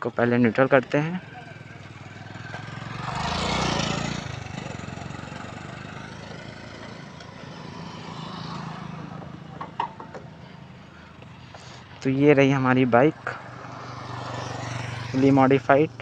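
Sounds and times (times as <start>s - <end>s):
motorcycle engine idling: 0.2s - 12.0s.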